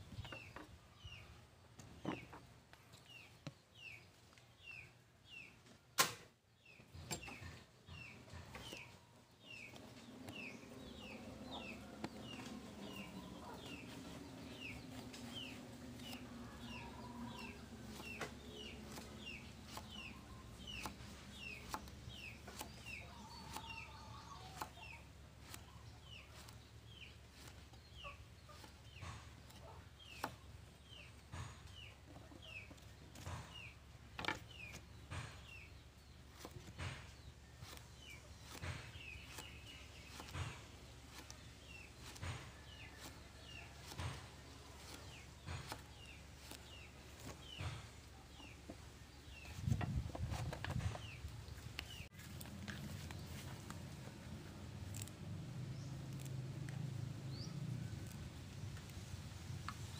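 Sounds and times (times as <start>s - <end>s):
chickens clucking: 6.9s - 54.6s.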